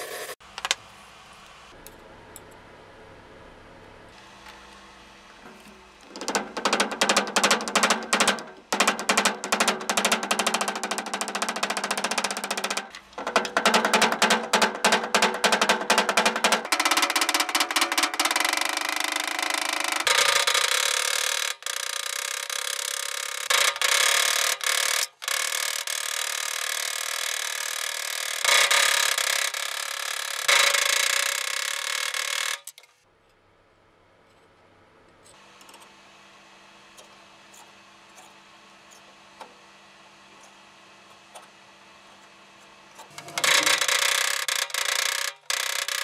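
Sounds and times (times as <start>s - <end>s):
wooden dowel scraping metal sheet: 5.4s - 25.2s, 43.0s - 46.0s.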